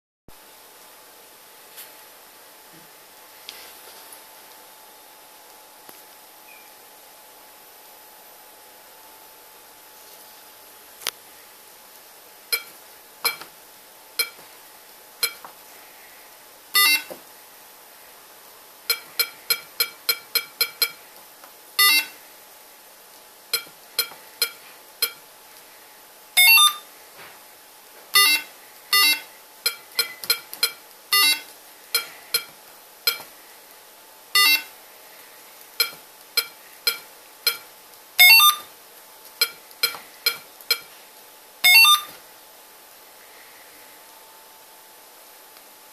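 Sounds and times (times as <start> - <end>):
short electronic keypad beeps: 12.5 - 12.7, 14.2 - 14.4, 15.2 - 15.4, 16.8 - 17.1, 18.9 - 21.0, 21.8 - 22.2, 23.5 - 25.2, 26.4 - 26.9, 28.2 - 32.5, 33.1 - 33.3, 34.4 - 34.7, 35.8 - 38.7, 39.4 - 40.9, 41.6 - 42.2
longer electronic tones: 16.8 - 17.2, 21.8 - 22.2, 26.4 - 26.9, 28.2 - 32.5, 34.4 - 34.7, 38.2 - 38.7, 41.6 - 42.2.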